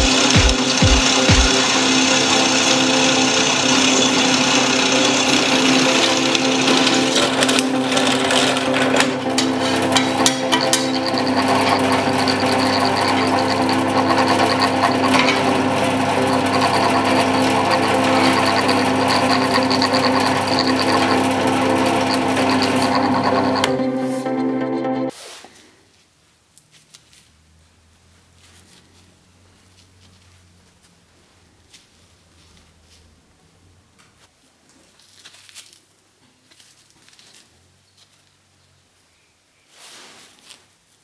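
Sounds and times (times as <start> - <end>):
sharp clicks and rattles: 0.0 - 23.9
drill press cutting steel: 0.0 - 24.7.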